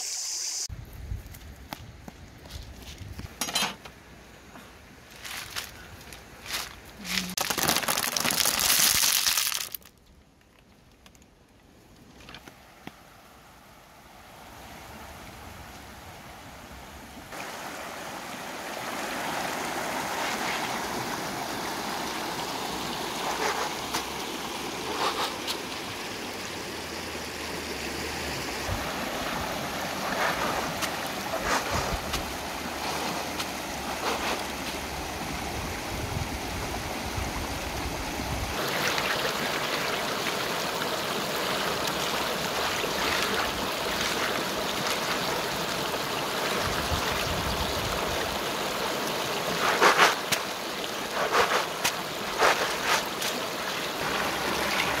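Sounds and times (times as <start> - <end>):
water splashes: 17.3 - 35.6, 38.4 - 55.0
river rushing over rocks: 17.3 - 55.0.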